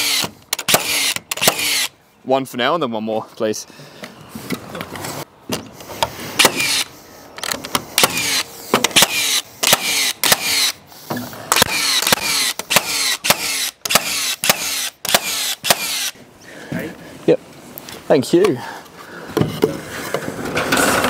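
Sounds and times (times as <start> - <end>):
nail gun shots: 0.0 - 1.9, 6.4 - 6.9, 8.0 - 10.8, 11.5 - 16.2
nailer motor whirring: 0.0 - 1.9, 6.4 - 6.9, 7.5 - 16.2.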